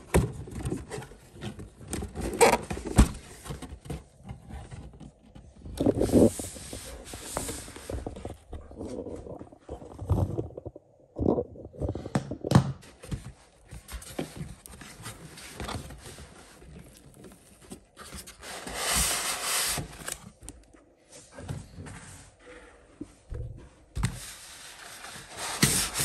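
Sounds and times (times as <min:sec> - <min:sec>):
cardboard scraping and rustling: 0:00.0 - 0:10.7, 0:12.8 - 0:20.6, 0:23.8 - 0:26.0
cardboard sliding scrape: 0:02.4 - 0:10.1, 0:13.9 - 0:20.2, 0:24.2 - 0:26.0.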